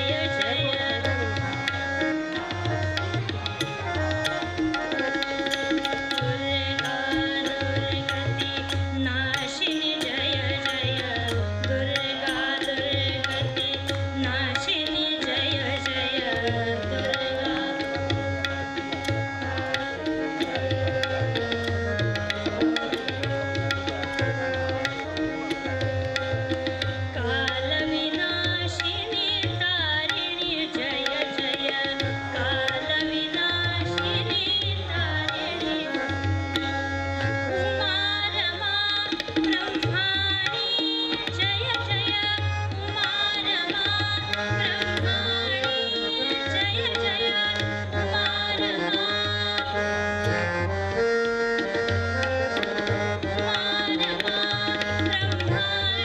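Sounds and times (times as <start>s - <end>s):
tabla strokes: 0.0s - 56.0s.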